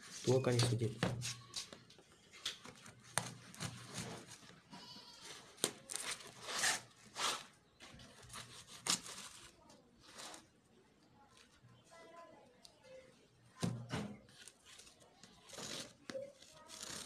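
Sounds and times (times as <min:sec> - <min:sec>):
knife scraping through cardboard: 0:02.8 - 0:04.6, 0:05.2 - 0:07.5, 0:08.2 - 0:09.5, 0:15.5 - 0:17.0.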